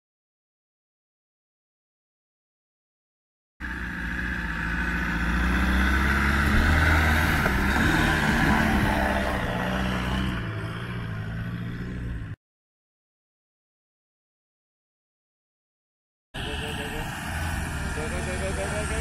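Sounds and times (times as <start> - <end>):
vehicle engine driving through mud: 3.6 - 12.3, 16.4 - 19.0.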